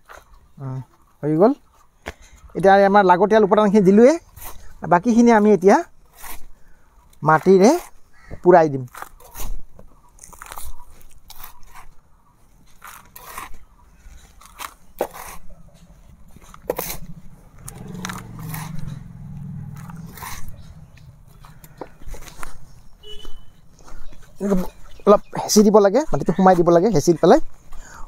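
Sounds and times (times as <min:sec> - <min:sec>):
hands scraping crumbly soil: 0:03.8 - 0:08.0, 0:08.7 - 0:27.6
low hum: 0:15.6 - 0:23.0.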